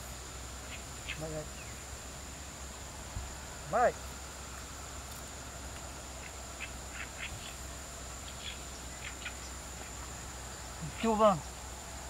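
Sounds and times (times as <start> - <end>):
insects whining: 0.0 - 12.0
faint animal calls: 5.5 - 12.0.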